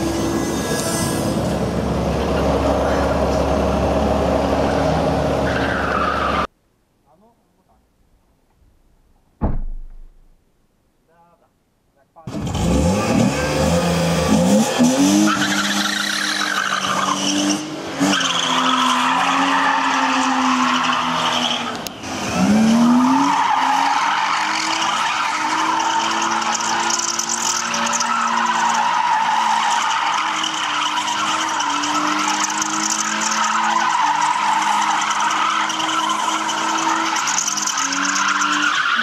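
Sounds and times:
car engine revving high: 12.3 - 29.2
tyres squealing: 22.7 - 39.0.

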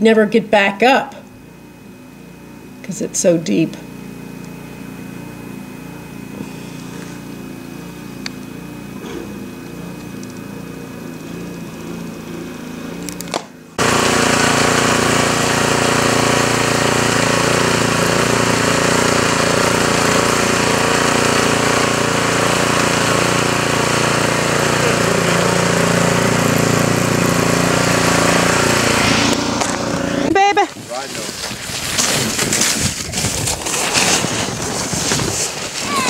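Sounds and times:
snowblower engine running: 1.3 - 36.0.

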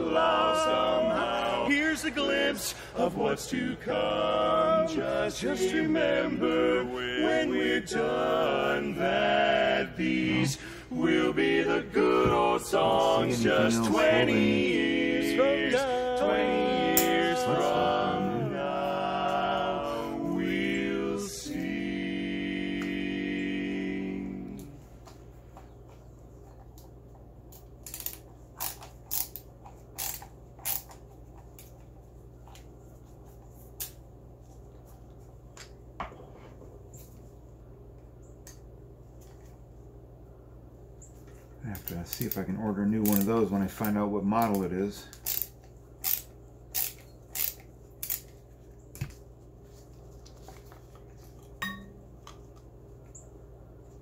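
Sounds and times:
screwdriver clicking: 27.9 - 29.4, 30.0 - 31.0, 43.0 - 43.3, 45.2 - 48.3.

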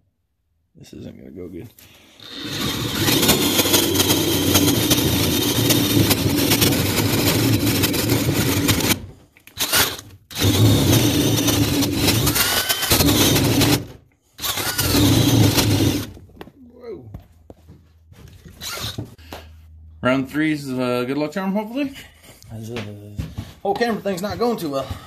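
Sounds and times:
power drill boring into wood: 2.1 - 16.2, 18.6 - 19.1.

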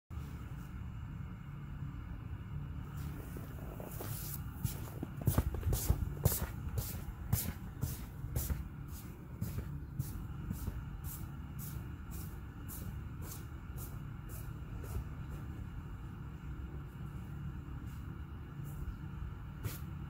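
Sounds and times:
low steady hum: 0.1 - 20.0
footsteps crunching on snow: 2.9 - 11.0.

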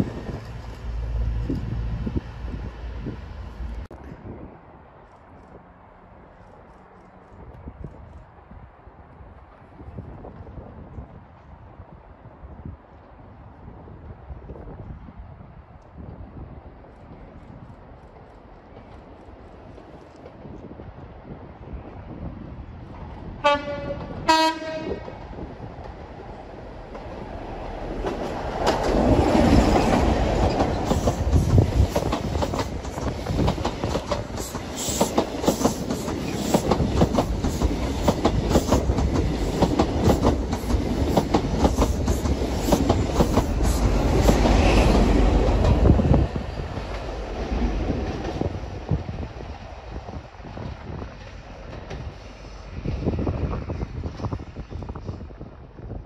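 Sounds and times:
diesel train engine rumble: 0.0 - 5.0, 17.1 - 56.0
wheels clacking over rail joints: 26.8 - 48.5.

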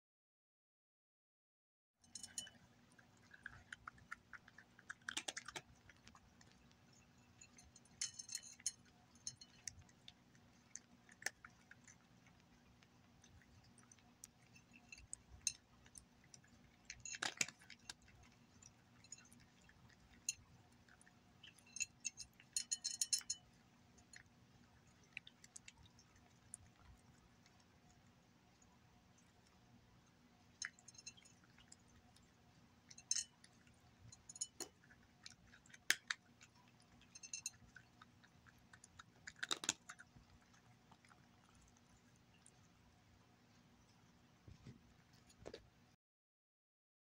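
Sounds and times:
cat crunching dry kibble: 2.4 - 42.8.

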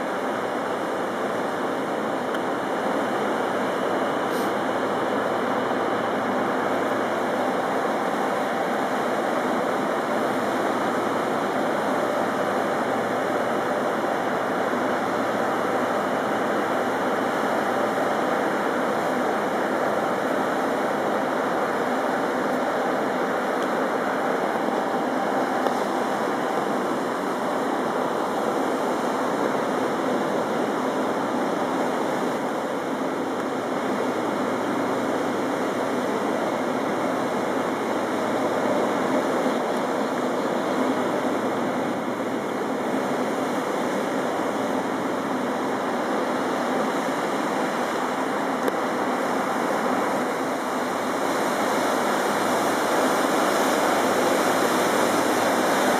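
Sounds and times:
water rushing and churning: 0.0 - 55.9.

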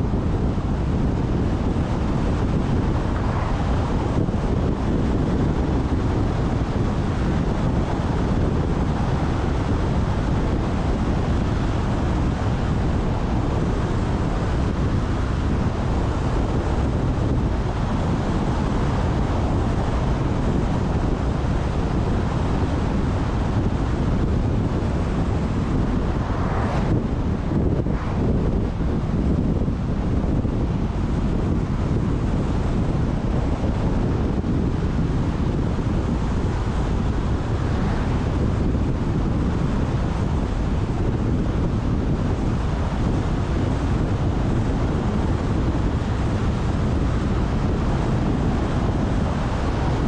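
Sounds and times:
car road and tyre noise: 0.0 - 50.0
wind buffeting microphone: 0.0 - 50.0
passing car swoosh: 2.9 - 4.1, 24.5 - 29.2, 36.4 - 38.6.

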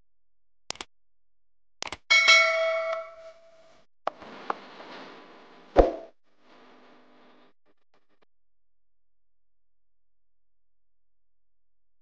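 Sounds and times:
loud ringing clang: 2.1 - 3.5.

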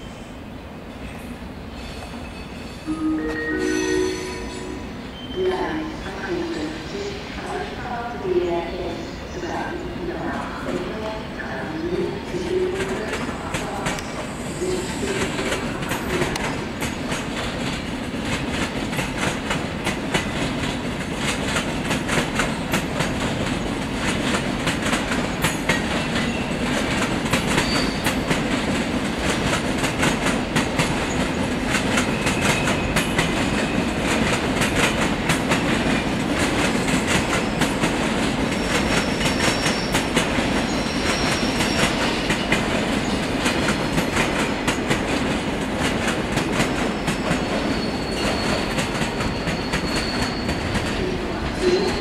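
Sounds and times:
train rumble: 0.8 - 52.0
train wheels clattering over rail joints: 15.2 - 51.0
high wheel squeals: 27.6 - 28.1, 38.6 - 42.4, 46.9 - 50.9.

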